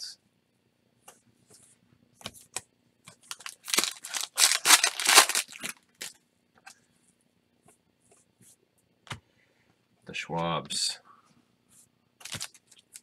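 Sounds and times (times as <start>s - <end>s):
foil wrapper ripping and rustling: 3.3s - 6.1s, 12.2s - 13.0s.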